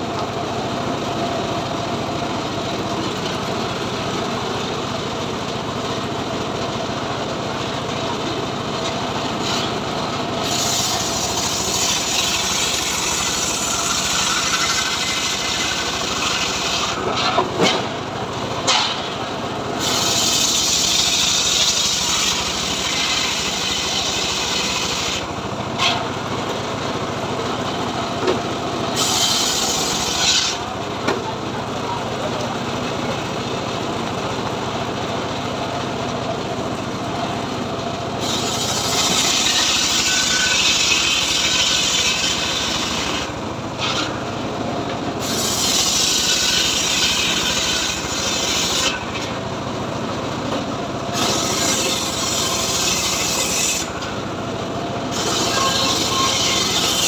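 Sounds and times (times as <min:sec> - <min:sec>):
sawmill machine running: 0:00.0 - 0:57.0
saw blade rasping through wood: 0:10.4 - 0:18.0, 0:19.8 - 0:26.1, 0:29.0 - 0:30.7, 0:38.2 - 0:44.2, 0:45.2 - 0:49.4, 0:51.1 - 0:54.1, 0:55.1 - 0:57.0.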